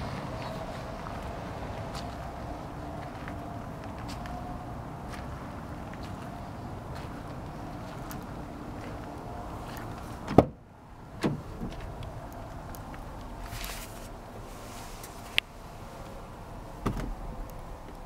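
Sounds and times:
van door latch clunk: 0:10.3 - 0:10.6.

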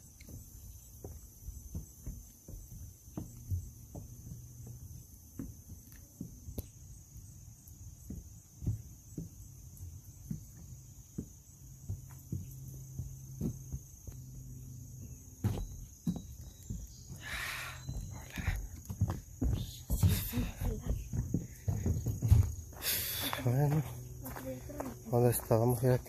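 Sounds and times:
footsteps on boardwalk: 0:00.0 - 0:26.0
insects trilling: 0:00.0 - 0:26.0.

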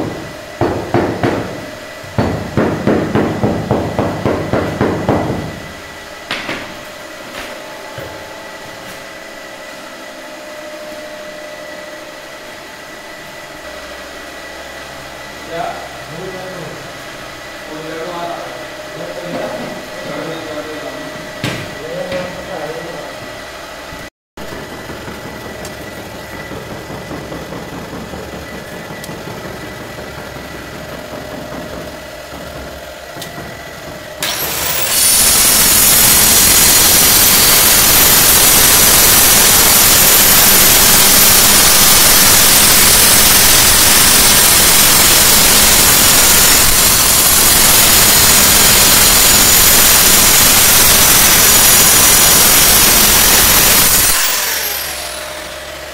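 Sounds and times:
tile cutter grinding: 0:24.4 - 0:55.8.

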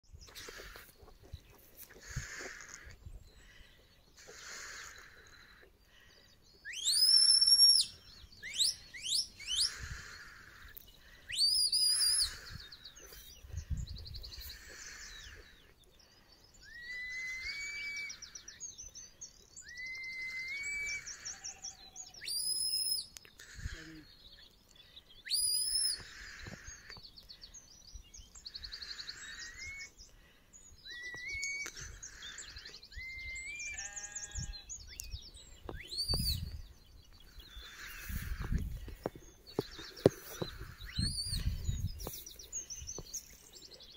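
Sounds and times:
upward-sliding whistles and trills: 0:06.6 - 0:09.7, 0:16.6 - 0:18.2, 0:19.6 - 0:21.1, 0:25.3 - 0:26.0, 0:30.9 - 0:31.8, 0:32.9 - 0:33.9, 0:35.7 - 0:36.5
sharp rising whistles: 0:06.7 - 0:09.7, 0:16.6 - 0:18.3, 0:19.6 - 0:21.2, 0:22.2 - 0:23.0, 0:25.3 - 0:26.0, 0:30.9 - 0:31.8, 0:32.9 - 0:33.9, 0:35.8 - 0:36.4.

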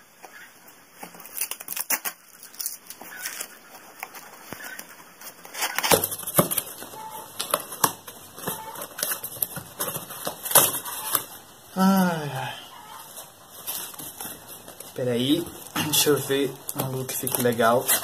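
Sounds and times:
cardboard box being torn open: 0:01.0 - 0:03.6, 0:05.4 - 0:11.3.

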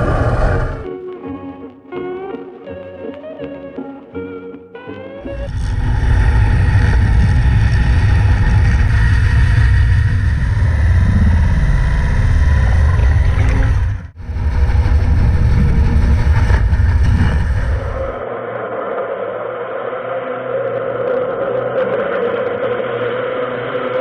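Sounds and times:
underwater cleaning machine humming: 0:05.3 - 0:18.2.

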